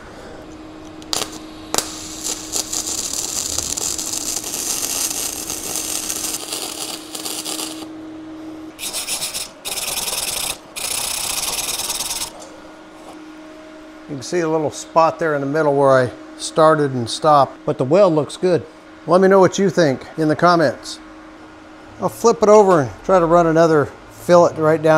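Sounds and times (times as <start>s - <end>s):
welding arc crackling and sizzling: 0.8s - 8.0s, 8.8s - 12.5s
wire brush scrubbing metal: 8.8s - 12.4s.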